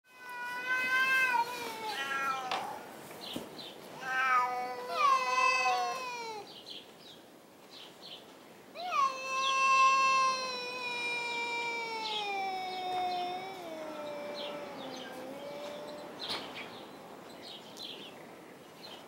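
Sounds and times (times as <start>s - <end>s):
cats yowling: 0.1s - 3.0s, 3.9s - 6.5s, 8.8s - 16.6s.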